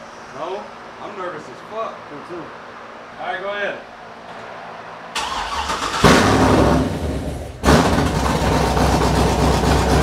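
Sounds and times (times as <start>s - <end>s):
car engine rumbling: 5.1s - 10.0s
engine starter cranking: 5.2s - 6.6s.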